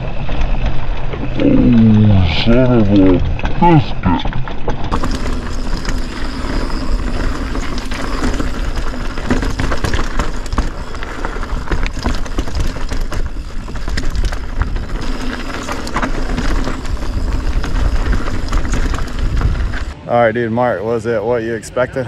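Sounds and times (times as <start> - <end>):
bike chain and frame clattering: 0.0 - 20.0
tyres rolling over gravel: 0.0 - 20.1
wind rumble on microphone: 4.4 - 20.0.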